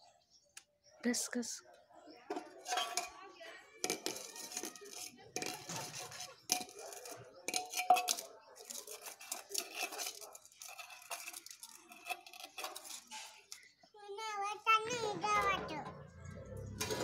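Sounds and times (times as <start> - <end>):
metal dishes clinking: 2.3 - 13.8, 14.9 - 17.0.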